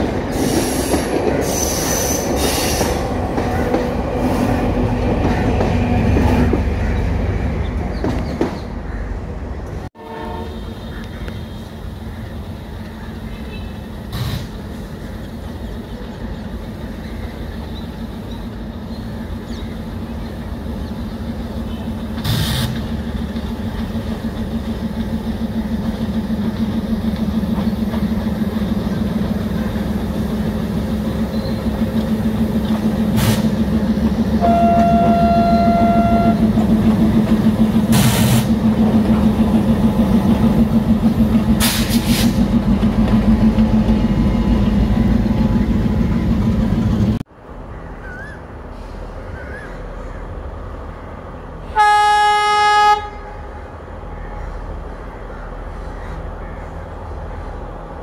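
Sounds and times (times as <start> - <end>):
diesel locomotive engine drone: 0.0 - 58.0
train horn blast: 10.0 - 10.9, 34.4 - 36.7, 51.7 - 53.6.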